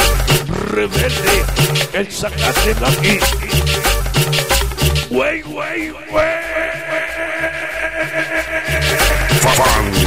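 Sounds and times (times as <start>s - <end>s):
pulsing bass line: 0.0s - 5.3s, 7.6s - 10.0s
percussion beat: 0.0s - 7.3s, 8.0s - 10.0s.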